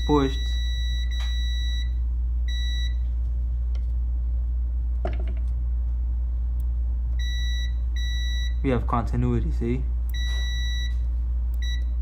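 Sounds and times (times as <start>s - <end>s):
multimeter beeps: 0.0s - 3.1s, 7.2s - 8.7s, 10.1s - 12.0s
low hum: 0.0s - 12.0s.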